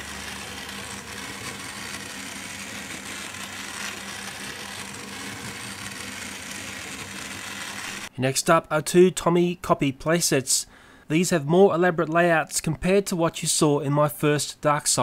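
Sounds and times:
toy train motor whirring: 0:00.0 - 0:08.1.

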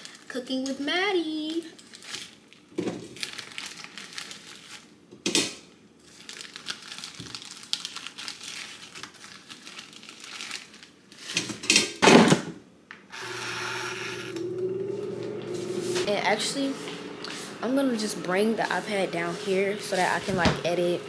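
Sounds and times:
plastic packaging crinkling: 0:00.0 - 0:05.0, 0:06.0 - 0:11.4
air fryer fan humming: 0:13.1 - 0:21.0.

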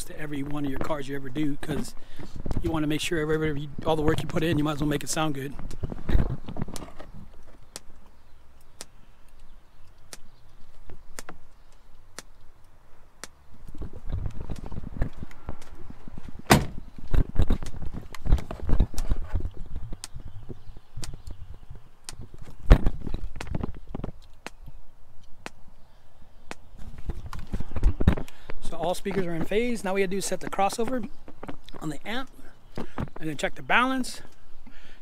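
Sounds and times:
knocks and thumps: 0:16.4 - 0:21.2.

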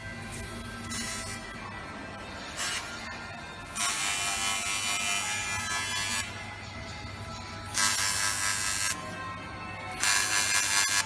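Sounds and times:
welding arc hissing and buzzing: 0:07.8 - 0:09.0, 0:10.0 - 0:11.0.

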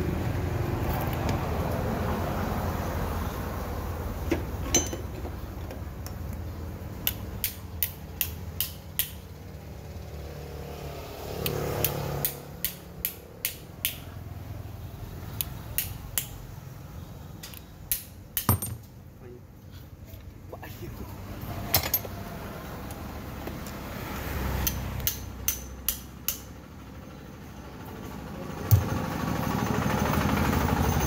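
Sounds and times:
hammer tapping on metal: 0:17.9 - 0:18.9, 0:24.6 - 0:26.5.

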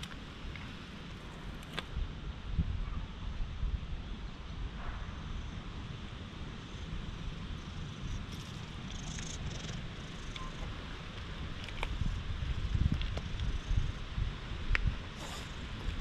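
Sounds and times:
cat purring: 0:08.2 - 0:10.8.

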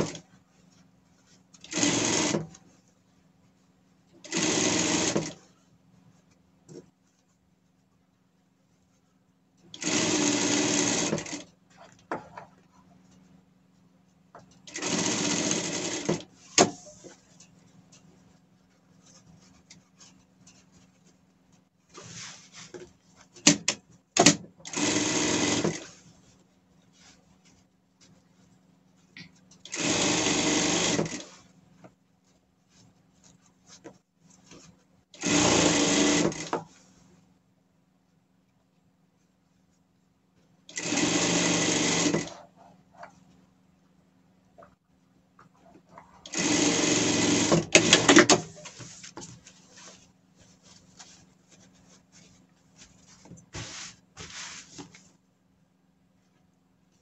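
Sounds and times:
sewing machine stitching: 0:00.0 - 0:00.2, 0:01.6 - 0:02.6, 0:04.2 - 0:05.4, 0:09.7 - 0:11.5, 0:14.6 - 0:17.2, 0:23.4 - 0:26.0, 0:29.6 - 0:31.4, 0:35.2 - 0:36.7, 0:40.7 - 0:42.5, 0:46.2 - 0:48.8.

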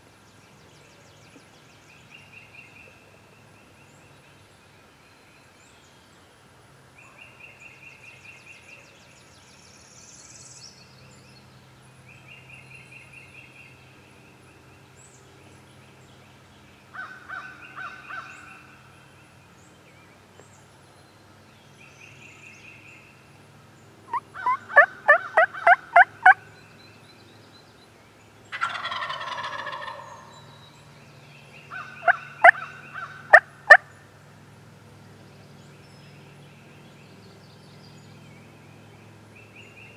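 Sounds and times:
turkey gobbling: 0:24.1 - 0:26.4, 0:28.5 - 0:30.3, 0:31.7 - 0:33.8
turkey yelps: 0:24.1 - 0:26.4, 0:28.5 - 0:30.3, 0:31.7 - 0:33.8.

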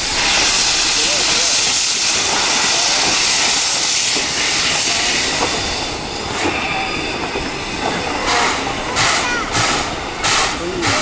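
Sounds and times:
steam hissing from locomotive: 0:00.0 - 0:11.0
sharp puff of steam: 0:09.0 - 0:11.0.

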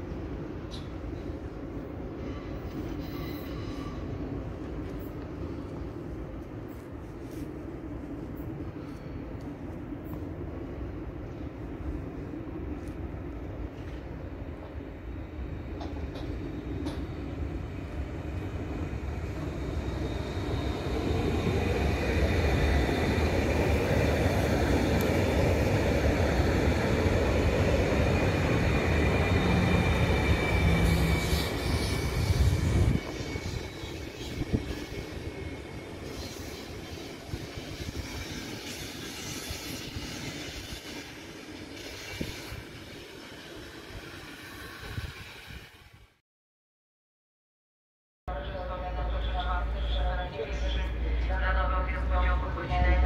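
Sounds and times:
train running rumble and clatter: 0:00.0 - 0:45.7, 0:48.4 - 0:53.0
wheels and brakes squealing: 0:02.2 - 0:04.2, 0:29.1 - 0:45.4.

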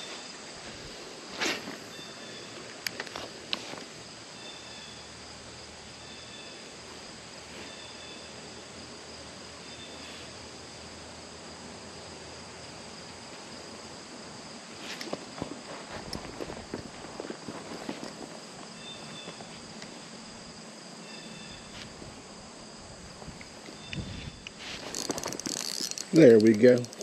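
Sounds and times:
insects chirring: 0:00.0 - 0:27.0
clicks and rustles: 0:14.8 - 0:18.4, 0:23.3 - 0:27.0.

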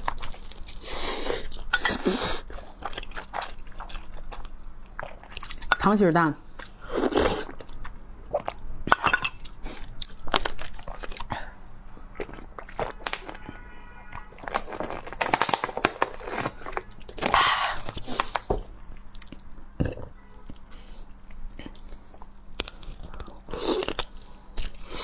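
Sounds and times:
wet chewing: 0:00.0 - 0:05.8, 0:06.6 - 0:25.0
plastic bottle crinkling: 0:14.2 - 0:18.6.

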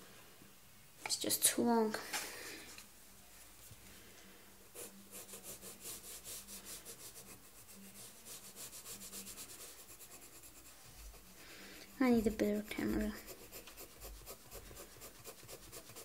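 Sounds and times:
colored pencil shading on paper: 0:04.7 - 0:16.0.

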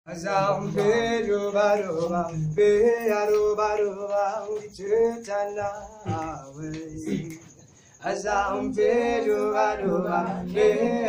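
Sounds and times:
male vocal group singing: 0:00.1 - 0:11.0
singers breathing: 0:07.4 - 0:08.0.

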